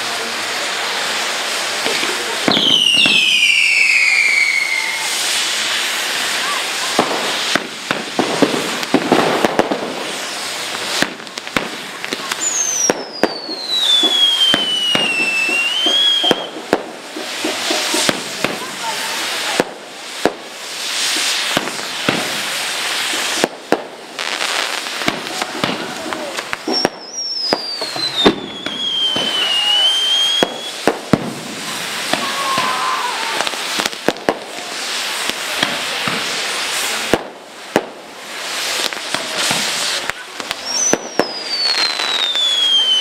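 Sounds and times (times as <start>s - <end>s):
firecrackers crackling: 0.0s - 43.0s
firework bangs: 0.0s - 43.0s
firework whistle falling in pitch: 2.5s - 5.3s, 12.4s - 16.6s, 26.7s - 30.8s, 40.7s - 43.0s.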